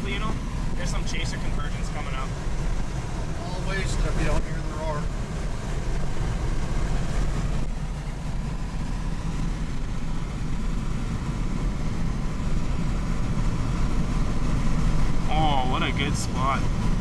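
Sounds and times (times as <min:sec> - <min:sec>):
car engine rumble: 0:00.0 - 0:17.0
road noise: 0:00.0 - 0:17.0.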